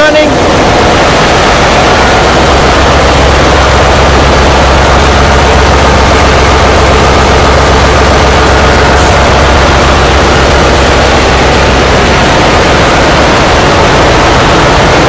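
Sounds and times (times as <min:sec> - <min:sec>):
engine-room machinery drone: 0:00.0 - 0:15.0.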